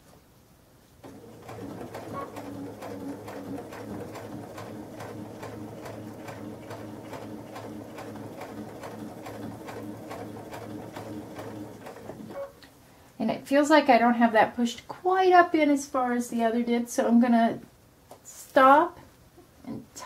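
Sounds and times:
sewing machine motor hum: 1.0 - 12.5.

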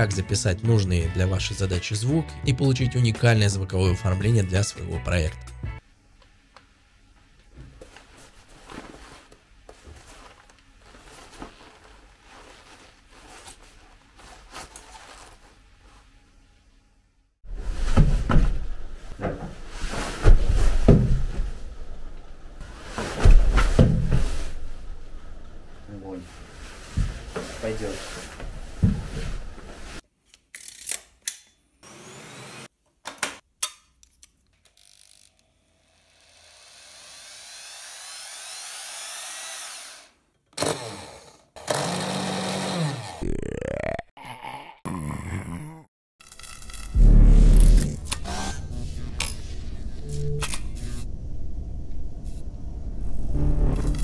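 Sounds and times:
power drill whine: 35.3 - 43.1.

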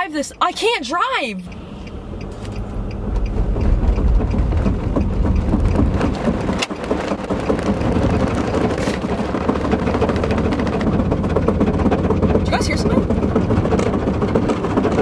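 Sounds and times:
road noise inside car: 0.0 - 15.0.

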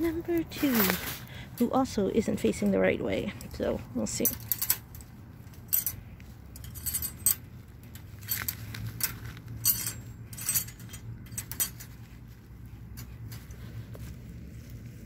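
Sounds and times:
wire cage rattling: 4.0 - 13.6.

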